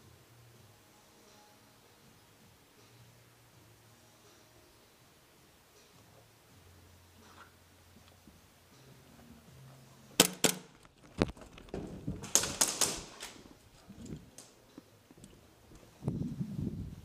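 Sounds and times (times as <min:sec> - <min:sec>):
airsoft gunfire cracks: 0:10.2 - 0:10.7.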